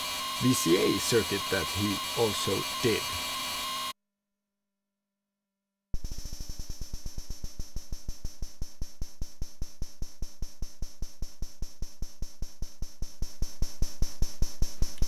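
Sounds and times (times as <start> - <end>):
high metallic hiss: 0.0 - 3.6.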